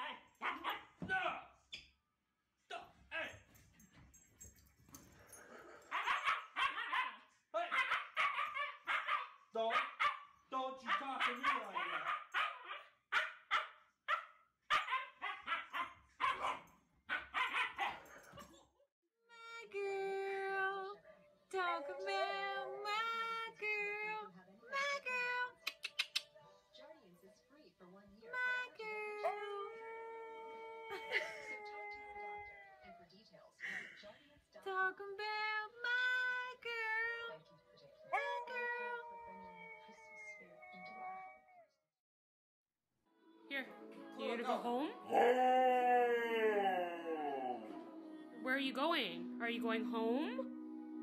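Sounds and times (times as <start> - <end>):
dog barking excitedly: 0.0 - 1.0, 5.9 - 18.1
dog howling: 21.5 - 23.4, 38.1 - 41.7, 45.0 - 48.4.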